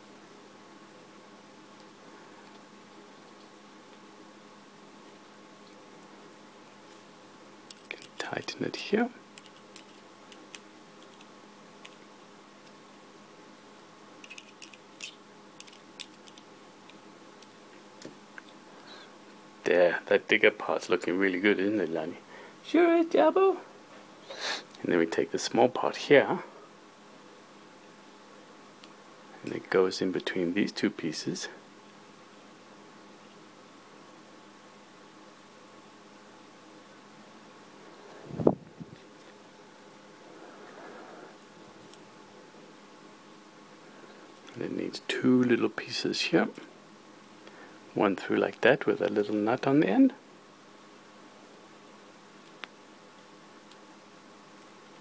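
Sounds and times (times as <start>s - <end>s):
faint steady hum: 0.0s - 55.0s
quiet steady hiss: 0.0s - 55.0s
small metal parts handled: 7.7s - 8.5s, 9.4s - 12.0s, 14.2s - 16.5s.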